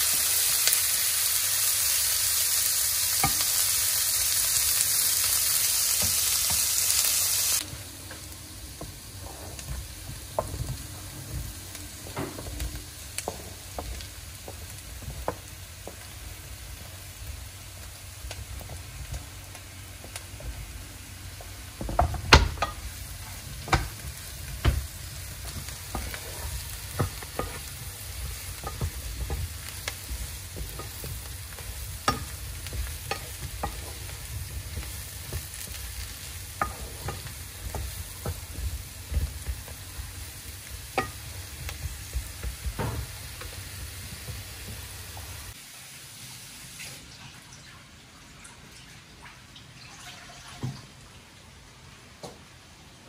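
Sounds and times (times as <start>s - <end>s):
loud steady hiss: 0.0s - 9.2s.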